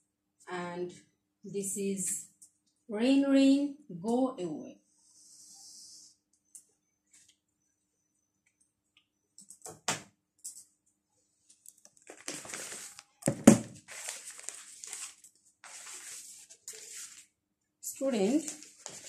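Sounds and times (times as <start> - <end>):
rustling handling noise: 11.4 - 17.3, 18.2 - 19.0.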